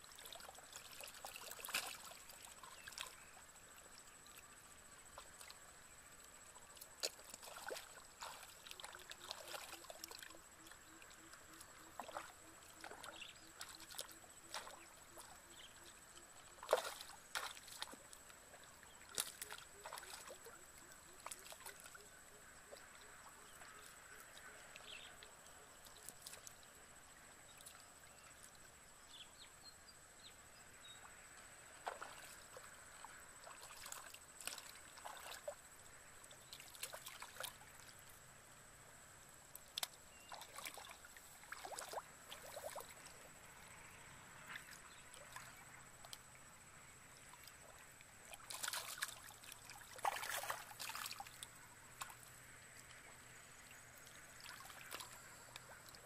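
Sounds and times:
sloshing in muddy water: 0:00.0 - 0:29.1, 0:30.7 - 0:56.0
loud short splashes: 0:16.6 - 0:18.0, 0:19.1 - 0:20.4, 0:31.8 - 0:32.6, 0:48.4 - 0:51.3.

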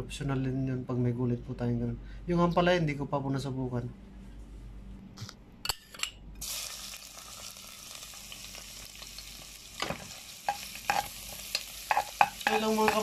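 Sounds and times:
garlic sizzling in hot oil: 0:06.4 - 0:13.0
spoon knocking against pot: 0:11.9 - 0:13.0.

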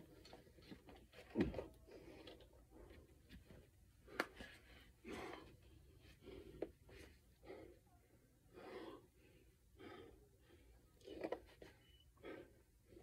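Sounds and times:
faint human breathing: 0:01.7 - 0:13.0.

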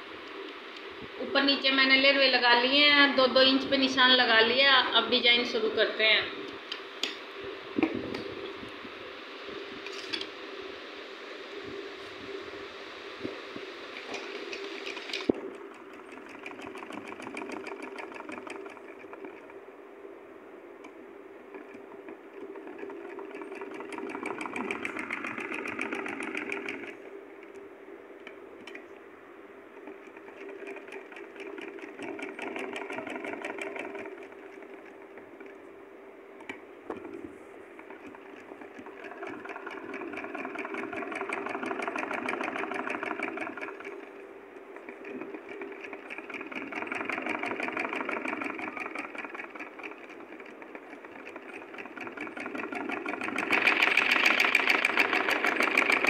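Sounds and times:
sewing machine stitching: 0:14.0 - 0:19.5, 0:21.5 - 0:27.0, 0:29.8 - 0:35.6, 0:37.8 - 0:44.2, 0:44.8 - 0:56.0.

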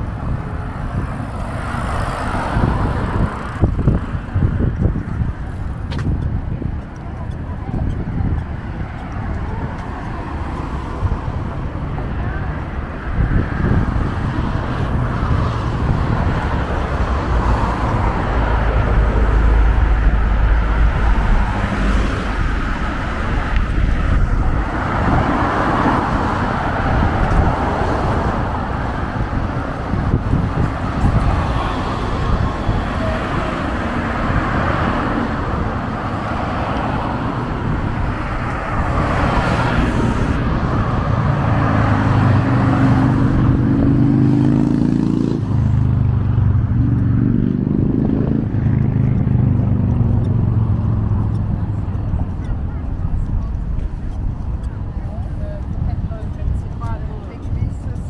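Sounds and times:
cars passing: 0:00.0 - 0:58.0
heavy low rumble: 0:02.3 - 0:44.0.

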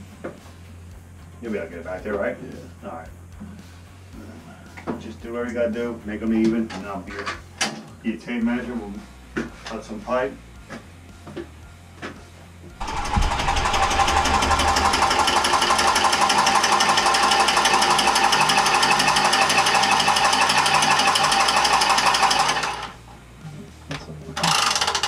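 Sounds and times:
tubing cutter whirring: 0:12.8 - 0:23.0, 0:24.4 - 0:25.0.

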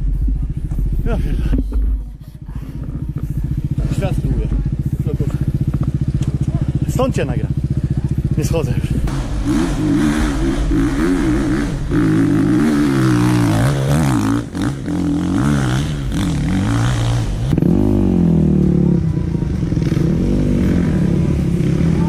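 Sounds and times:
dirt bike engines revving: 0:00.0 - 0:22.0.

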